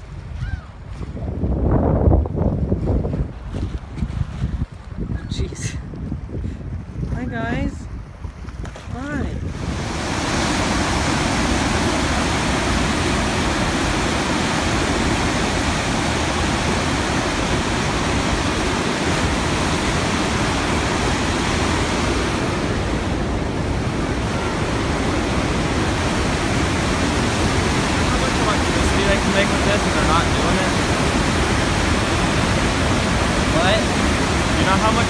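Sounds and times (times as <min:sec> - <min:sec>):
water roaring through spillway: 0:08.9 - 0:35.0.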